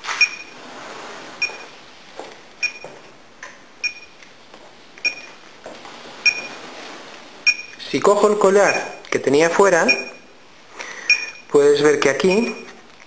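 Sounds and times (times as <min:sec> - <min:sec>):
short high electronic beeps: 0:00.2 - 0:00.6, 0:07.4 - 0:07.8.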